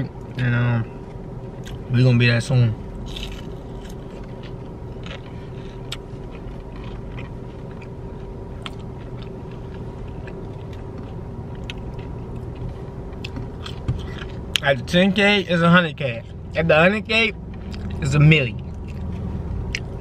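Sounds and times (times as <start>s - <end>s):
low hum inside car: 0.0s - 20.0s
man chewing: 1.5s - 1.9s, 3.0s - 14.6s, 17.5s - 18.0s, 18.6s - 20.0s.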